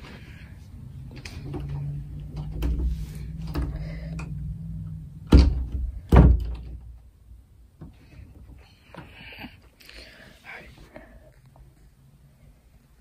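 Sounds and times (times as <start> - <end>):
low rumble: 0.0 - 7.7
door thudding: 5.3 - 6.8.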